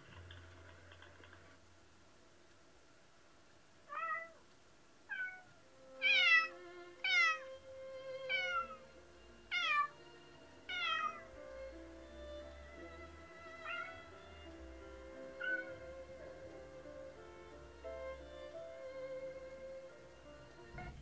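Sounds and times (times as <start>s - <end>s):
cat meowing: 3.9s - 4.4s, 5.1s - 7.5s, 8.2s - 8.9s, 9.5s - 10.0s, 10.7s - 14.5s, 15.2s - 16.1s.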